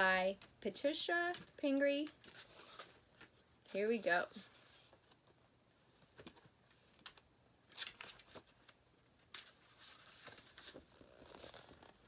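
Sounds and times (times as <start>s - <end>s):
paper rustling: 6.1s - 12.0s.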